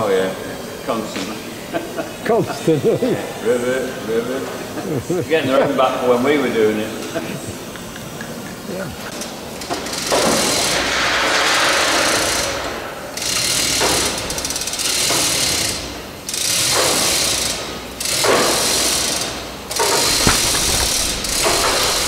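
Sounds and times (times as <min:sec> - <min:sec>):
pneumatic rivet gun hammering: 0:19.8 - 0:22.0.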